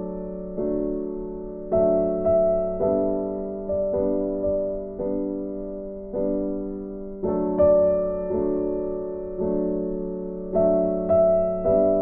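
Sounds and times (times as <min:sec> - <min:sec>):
slow piano chords: 0:00.0 - 0:12.0.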